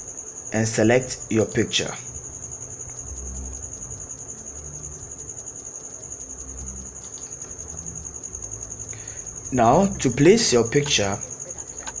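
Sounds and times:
insect trilling: 0.0s - 12.0s.

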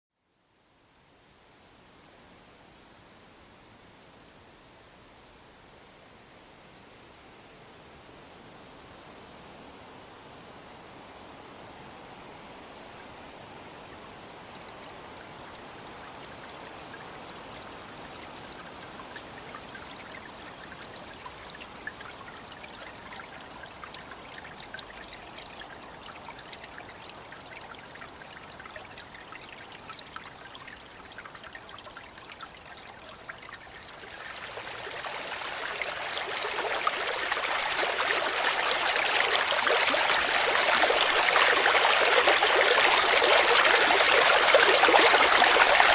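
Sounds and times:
stream splashing over rocks: 15.7s - 45.9s
fine droplet ticks: 31.6s - 37.2s.

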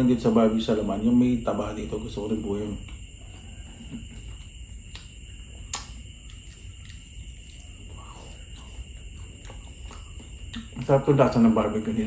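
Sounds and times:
faint high-pitched whine: 0.0s - 12.0s
man chewing food: 2.9s - 10.8s
mouth and lip clicks: 4.9s - 8.7s, 9.4s - 10.8s.

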